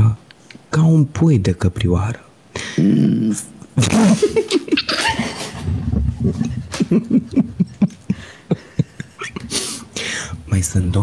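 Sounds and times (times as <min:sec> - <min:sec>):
person laughing breathily: 0:03.8 - 0:10.3.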